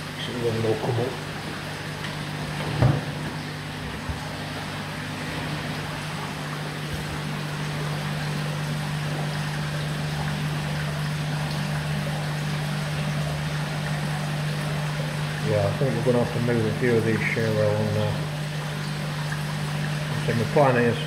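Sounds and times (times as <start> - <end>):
low pump hum: 0.0 - 21.0
water trickling into tank: 0.0 - 21.0.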